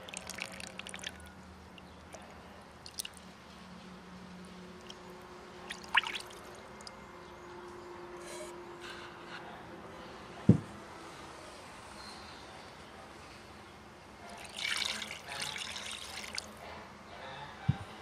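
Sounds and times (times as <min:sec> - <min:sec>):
liquid splash: 0:05.7 - 0:06.5, 0:14.3 - 0:16.5.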